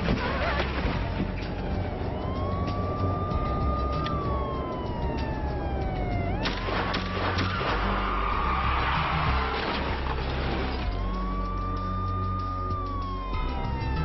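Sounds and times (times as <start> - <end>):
car engines rumbling: 0.0 - 14.0
police siren wailing: 0.2 - 14.0
sharp crack: 6.4 - 8.2.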